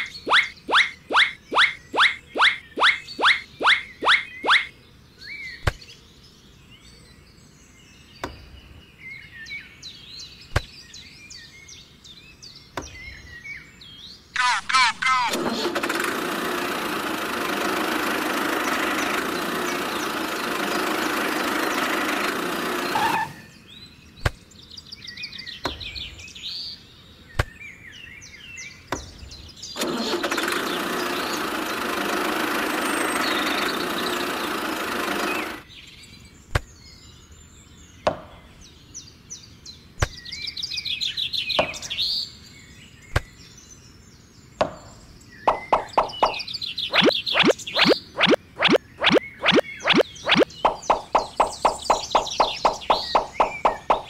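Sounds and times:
birds chirping: 0.0 - 54.0
toy tractor engine sound: 14.4 - 23.4, 29.8 - 35.6, 45.5 - 54.0.

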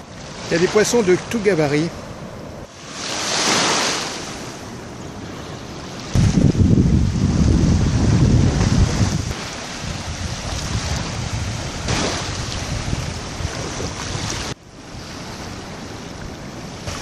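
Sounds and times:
small waves lapping on sand: 0.0 - 17.0
wind buffeting microphone: 0.0 - 17.0.

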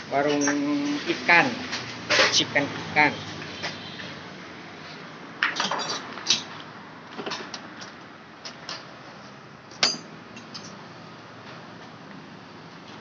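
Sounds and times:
light metallic clinks and knocks: 9.7 - 10.8.

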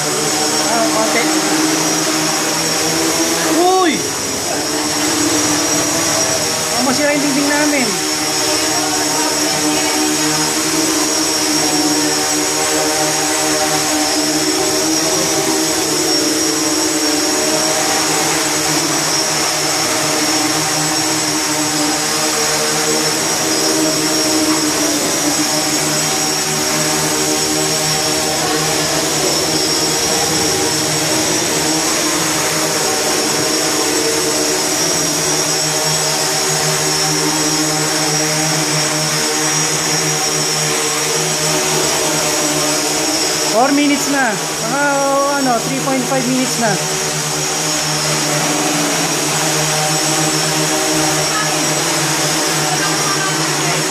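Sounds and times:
drone propellers buzzing: 0.0 - 53.9.

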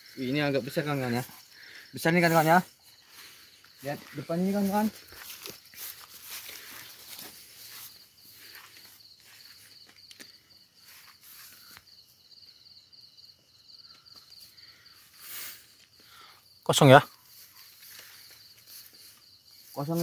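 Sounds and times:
leaves and branches rustling: 0.0 - 11.8, 17.2 - 20.0
night insects chirping: 0.0 - 20.0
footsteps: 2.2 - 11.8, 17.2 - 20.0.

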